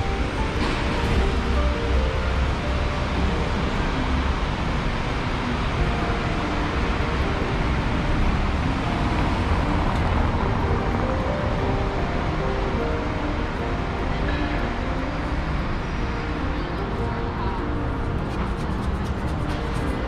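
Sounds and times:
deep traffic rumble: 0.0s - 20.0s
passing vehicles: 0.0s - 20.0s.

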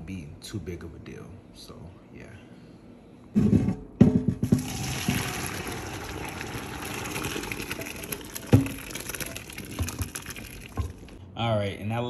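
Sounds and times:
water pouring through colander: 4.6s - 11.2s.

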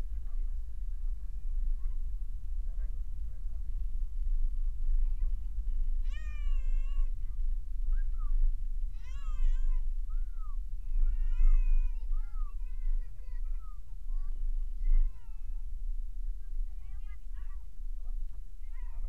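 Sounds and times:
meow-like cries: 6.0s - 7.1s, 8.9s - 12.6s.

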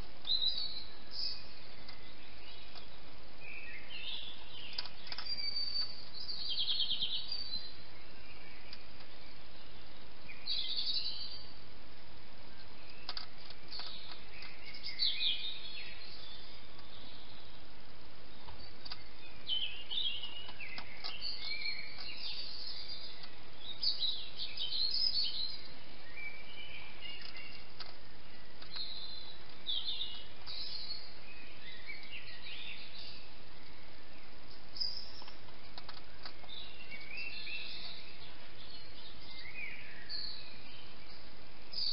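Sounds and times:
background hiss: 0.0s - 41.9s
songbirds chirping: 0.0s - 41.9s
faint clicks: 4.7s - 6.0s, 12.9s - 14.8s, 18.4s - 19.1s, 27.1s - 28.0s, 28.6s - 30.7s, 35.1s - 38.0s.

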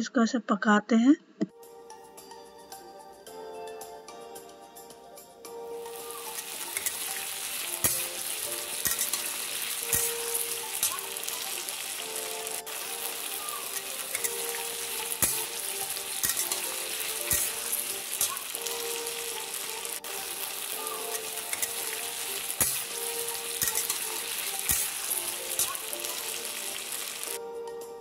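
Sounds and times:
potatoes sizzling in hot oil: 5.8s - 27.4s
metal spatula scraping pan: 5.9s - 27.3s.

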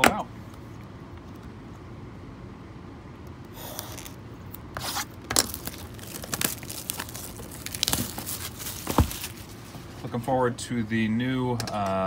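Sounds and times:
packaging tearing and crinkling: 3.6s - 9.6s.

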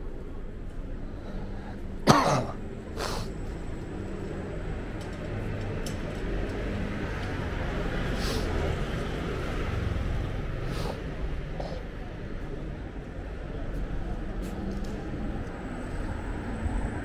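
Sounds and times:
person coughing: 2.0s - 2.6s.

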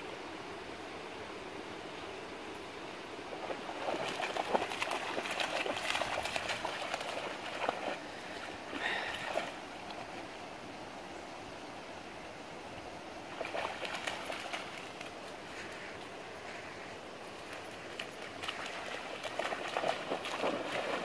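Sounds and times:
soft water sounds: 0.0s - 21.0s
puppy splashing in water: 3.4s - 8.0s, 13.3s - 15.3s, 17.4s - 21.0s.

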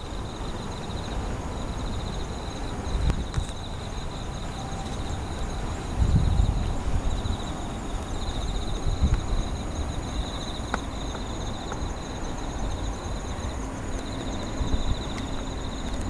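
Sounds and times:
crickets trilling: 0.0s - 16.0s.

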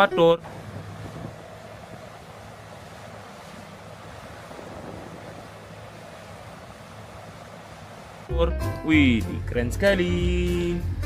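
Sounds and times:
excavator rumbling: 0.0s - 11.0s
wind noise on microphone: 0.4s - 2.3s, 4.3s - 7.0s.

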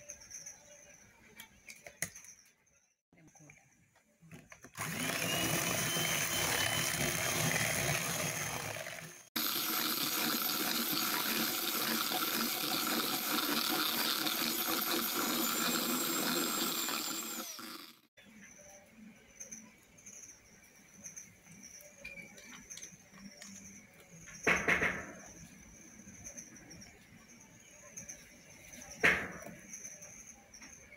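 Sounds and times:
electric hand mixer running: 4.8s - 18.1s.

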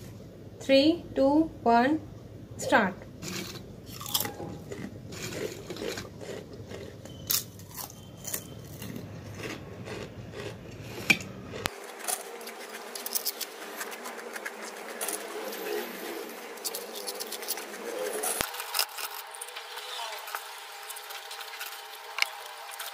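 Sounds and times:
chips scraping on steel plate: 3.2s - 8.9s, 11.7s - 22.9s
potato chips crunching: 3.2s - 22.9s.

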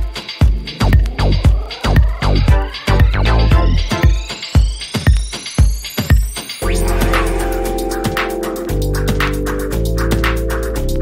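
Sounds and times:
electronic dance music: 0.0s - 10.8s
rising synth sweep: 6.6s - 9.1s.

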